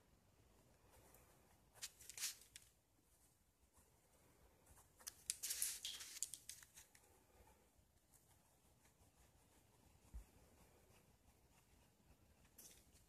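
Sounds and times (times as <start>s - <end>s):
paper rustling and scratching: 1.8s - 2.8s, 4.8s - 7.0s.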